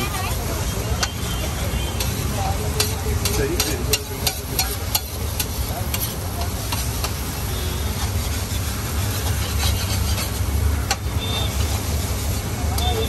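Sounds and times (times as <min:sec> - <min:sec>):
spatula clinking on griddle: 0:01.9 - 0:07.4
metal spatula scraping griddle: 0:01.9 - 0:12.0.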